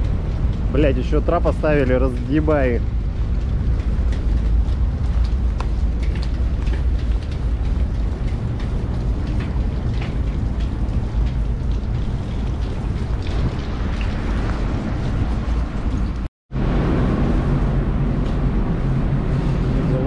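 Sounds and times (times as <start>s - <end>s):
raindrops ticking: 0.0s - 16.3s
wind buffeting microphone: 0.0s - 20.0s.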